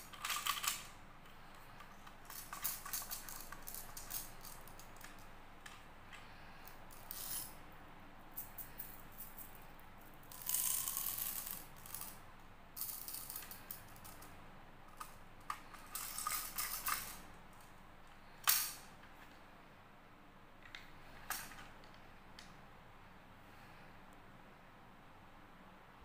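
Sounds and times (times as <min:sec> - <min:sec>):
candy balls rattling: 0:02.2 - 0:05.2, 0:10.2 - 0:12.2, 0:15.6 - 0:17.2.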